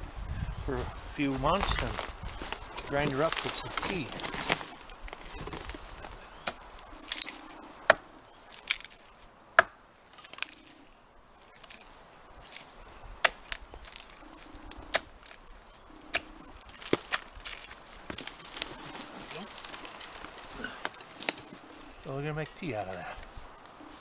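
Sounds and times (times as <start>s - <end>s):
hatchet chopping wood: 9.6s - 9.8s, 13.2s - 13.5s.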